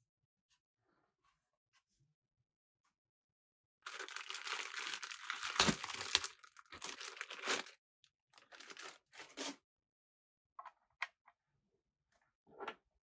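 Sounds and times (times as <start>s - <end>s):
plastic bag crinkling: 3.8s - 7.8s, 8.4s - 9.4s.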